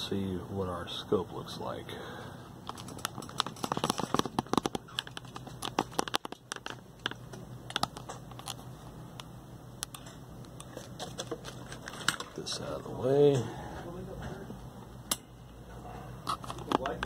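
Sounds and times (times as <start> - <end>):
steady low hum: 0.0 - 17.0
clicks and crackles of handling: 2.6 - 12.5, 16.2 - 17.0.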